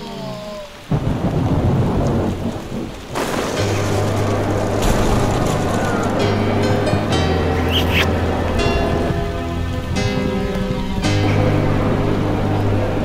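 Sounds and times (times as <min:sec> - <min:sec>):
heavy rain: 0:00.0 - 0:13.0
thunder rumbling: 0:00.9 - 0:08.4.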